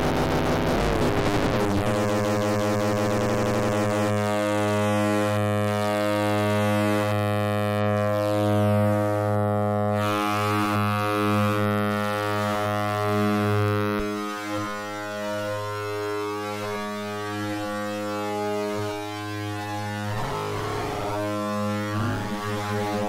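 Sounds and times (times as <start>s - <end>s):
low synth drone: 19.5s - 23.0s.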